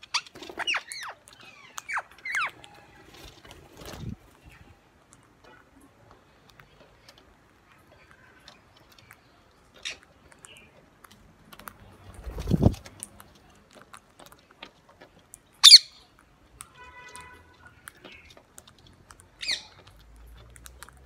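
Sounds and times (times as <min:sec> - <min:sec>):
beaks pecking and cracking seed: 0:00.0 - 0:21.0
parakeet call: 0:15.6 - 0:16.0
parakeet squawk: 0:15.6 - 0:16.0, 0:19.4 - 0:19.8.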